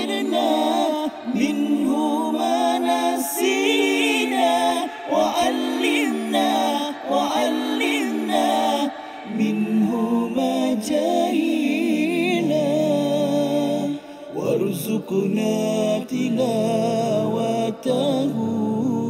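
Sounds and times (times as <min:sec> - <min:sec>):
voices singing a cappella: 0:00.0 - 0:19.0.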